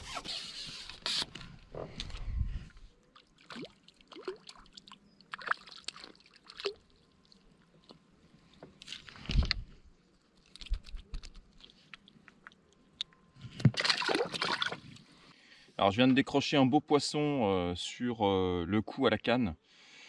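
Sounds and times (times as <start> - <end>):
clicks and rustles of handling: 10.3 - 13.8
fish splashing at water surface: 13.7 - 14.8.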